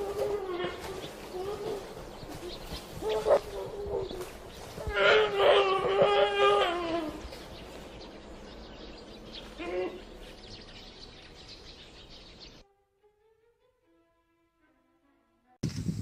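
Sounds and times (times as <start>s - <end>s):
dog crying in distress: 0.0s - 2.0s, 4.9s - 7.2s.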